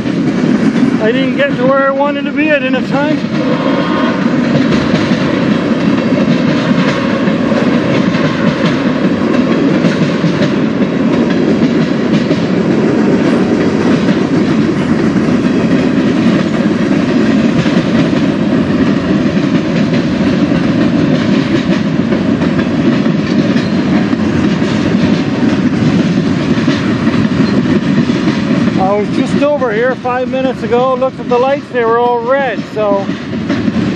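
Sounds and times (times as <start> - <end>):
freight train wheels clattering: 0.0 - 33.9.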